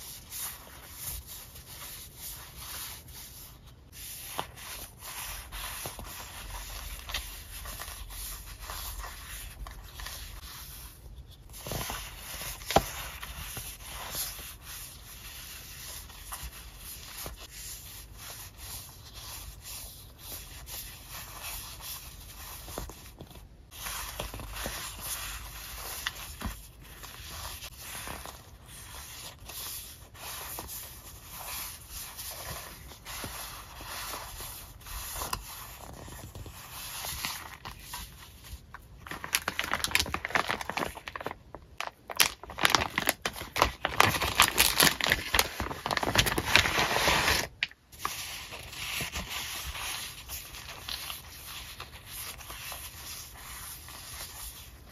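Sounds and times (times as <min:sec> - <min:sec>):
paper sheets rustling: 0:19.8 - 0:54.9.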